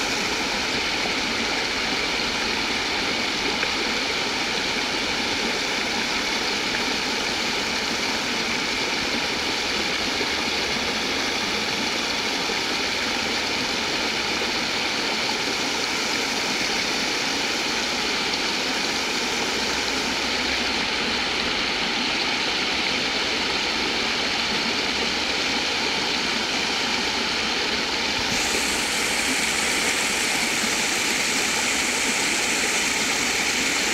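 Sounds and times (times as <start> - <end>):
water rushing over rocks: 0.0 - 33.9.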